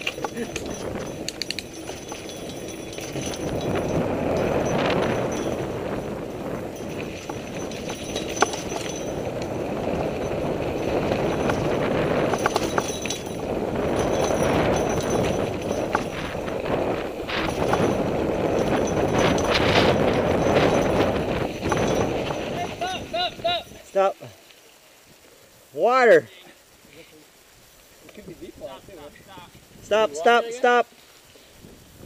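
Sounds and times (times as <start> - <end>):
bike rattling and clicking: 0.0 - 23.9
tyre and wind rushing: 0.0 - 32.0.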